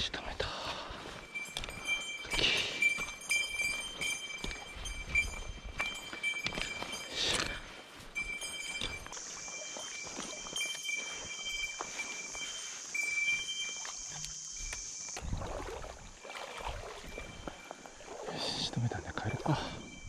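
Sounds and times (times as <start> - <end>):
high-pitched insect buzz: 8.8 - 18.2.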